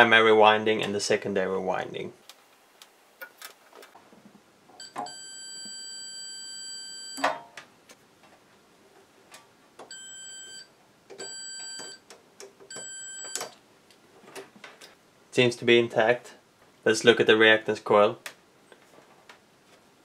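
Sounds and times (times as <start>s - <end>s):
multimeter beeps: 4.8s - 7.3s, 9.9s - 12.0s, 12.7s - 13.6s.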